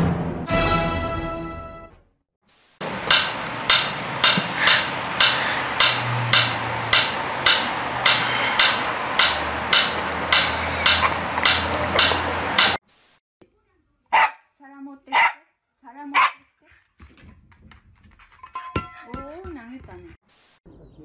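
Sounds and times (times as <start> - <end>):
metronome ticking: 3.1 - 12.8.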